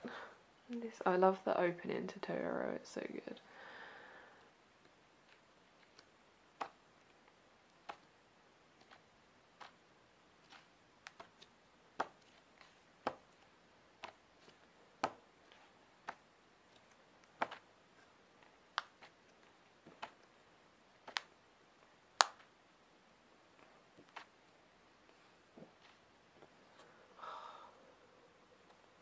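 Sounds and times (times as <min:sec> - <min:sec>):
book pages being turned: 0:05.2 - 0:06.8, 0:08.7 - 0:09.8, 0:10.4 - 0:20.3, 0:23.6 - 0:24.4.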